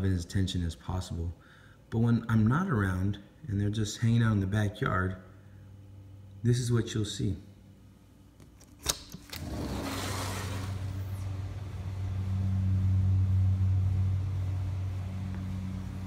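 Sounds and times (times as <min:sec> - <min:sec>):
air conditioner unit humming: 0:00.0 - 0:16.0
patio door opening rush: 0:09.2 - 0:11.6.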